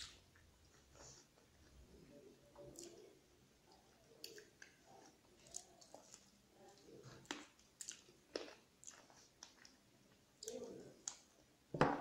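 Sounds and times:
chewing: 2.5s - 11.3s.

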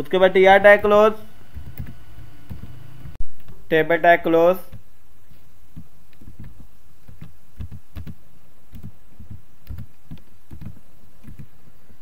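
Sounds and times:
low hum: 0.0s - 3.7s
keyboard typing: 1.5s - 3.2s, 5.8s - 11.5s.

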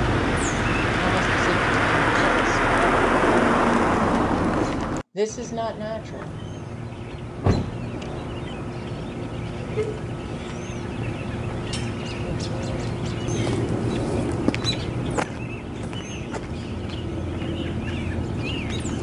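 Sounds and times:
birds chirping: 0.0s - 3.6s, 4.5s - 19.0s
steady low hum: 0.0s - 19.0s
sharp thump: 7.4s - 7.8s.

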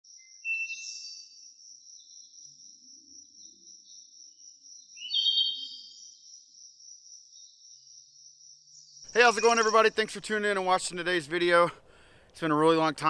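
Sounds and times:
bird call: 5.0s - 6.2s.

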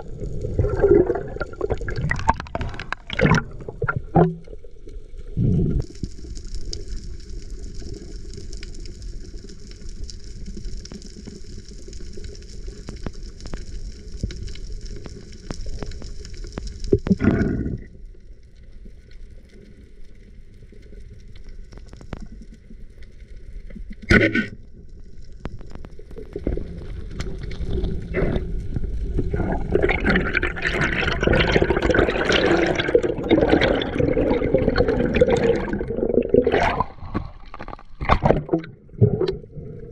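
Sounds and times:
water churning: 0.0s - 4.6s, 27.3s - 39.9s
muffled underwater rush: 0.0s - 18.1s, 22.3s - 39.9s.

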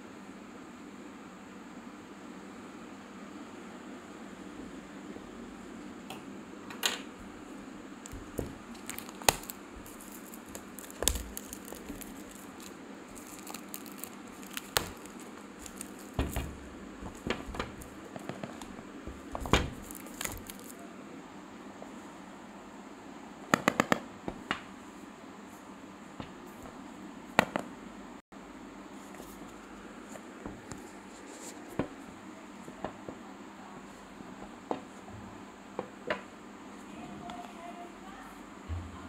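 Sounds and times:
steady background hiss: 0.0s - 39.0s
plastic wrap crinkling and tearing: 8.1s - 18.8s, 19.4s - 20.8s.

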